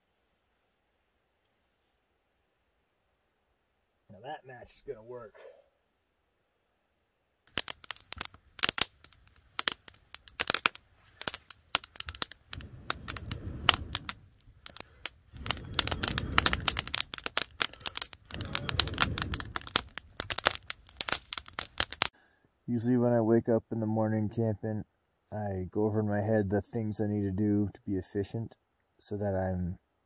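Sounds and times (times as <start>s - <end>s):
campfire crackling and popping: 7.4s - 22.2s
low rushing noise: 12.0s - 21.0s.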